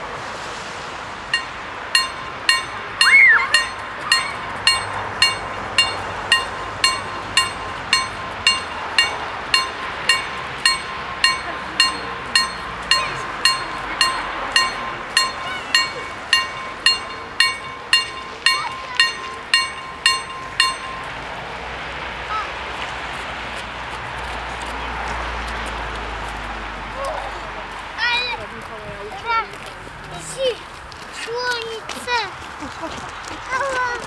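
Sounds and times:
level crossing warning bell: 1.3 - 21.9.

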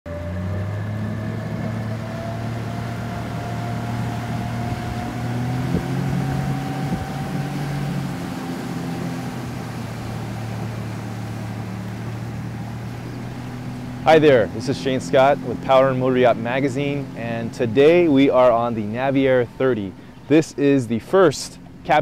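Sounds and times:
boat motor humming: 0.1 - 22.0
water wash: 0.1 - 22.0
wind noise: 1.8 - 14.1.

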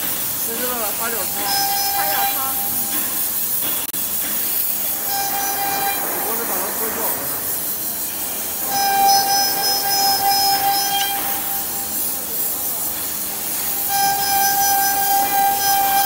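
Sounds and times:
compressed air hissing: 0.0 - 16.0
high whistling tone: 1.0 - 3.0, 5.0 - 6.5, 8.0 - 12.0, 13.7 - 16.0.

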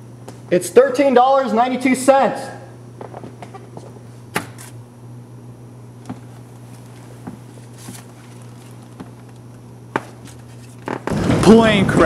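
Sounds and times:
steady low hum: 0.0 - 12.0
paper bills counted by hand: 6.5 - 9.4.

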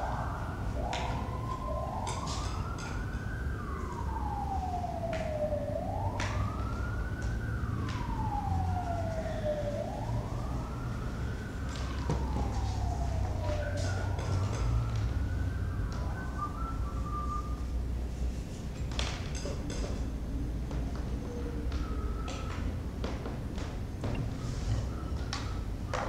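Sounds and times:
emergency vehicle siren wailing: 0.0 - 26.0.

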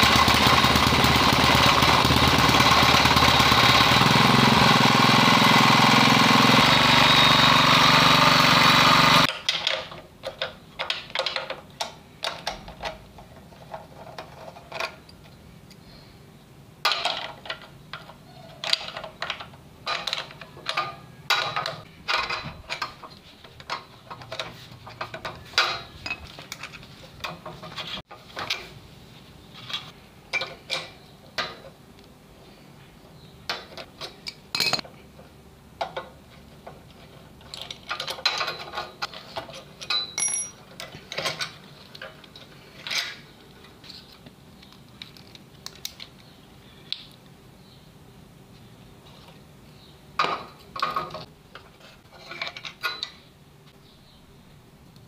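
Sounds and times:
small petrol engine running: 0.0 - 9.3
metallic clinks and rattles: 39.9 - 40.9.

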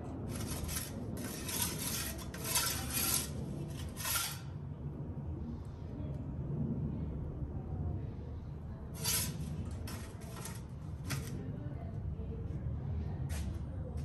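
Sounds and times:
metal pizza peel scraping oven floor: 0.0 - 4.6, 8.9 - 11.4.

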